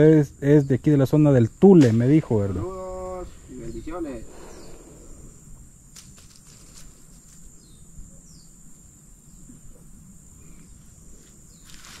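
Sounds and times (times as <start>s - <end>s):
bird chirps: 7.6s - 8.6s.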